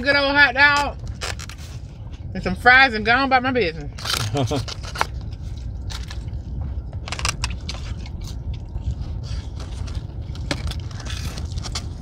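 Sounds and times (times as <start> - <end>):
low rumble: 0.0 - 12.0
crunchy food chewing: 4.0 - 12.0.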